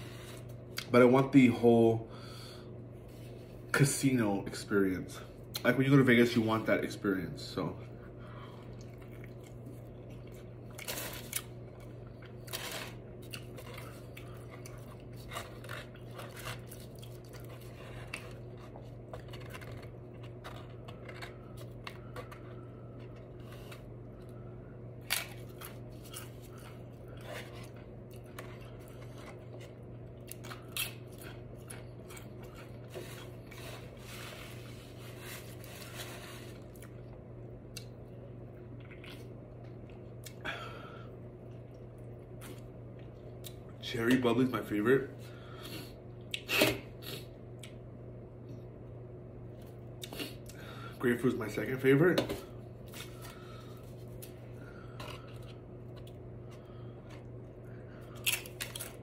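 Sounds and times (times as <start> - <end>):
low steady hum: 0.0 - 59.0
food crunching: 8.5 - 24.4, 25.0 - 40.4, 52.8 - 59.0.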